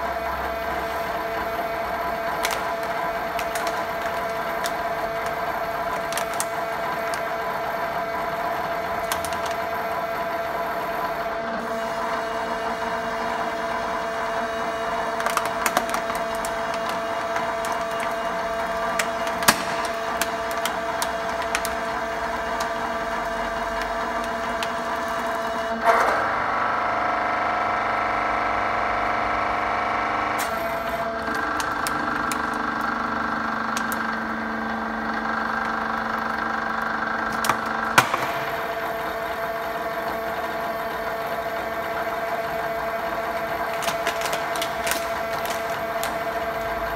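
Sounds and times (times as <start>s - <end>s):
hydraulic pump motor humming: 0.0s - 46.9s
plastic bottle crackling and snapping: 1.8s - 7.5s, 8.2s - 9.8s, 14.8s - 25.6s, 30.4s - 32.9s, 33.6s - 34.4s, 37.3s - 40.2s, 42.1s - 46.9s.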